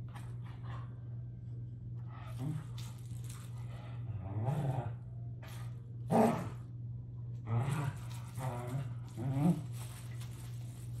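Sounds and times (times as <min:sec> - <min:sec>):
dog growling in play: 0:02.1 - 0:03.0, 0:03.6 - 0:05.2, 0:06.1 - 0:06.7, 0:07.4 - 0:09.9.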